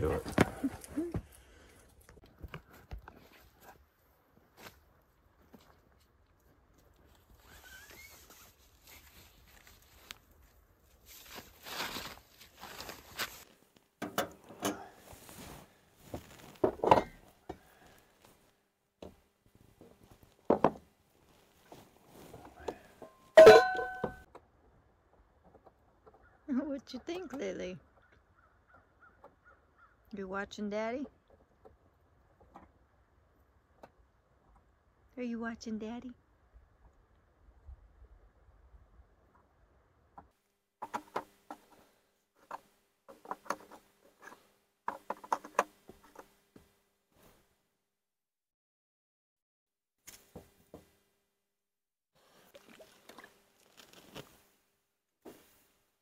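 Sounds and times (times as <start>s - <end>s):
rustling: 0.0s - 14.0s, 14.8s - 18.6s, 52.2s - 55.9s
sharp metallic clank: 23.4s - 24.2s
hard objects clicking and knocking: 42.4s - 46.3s.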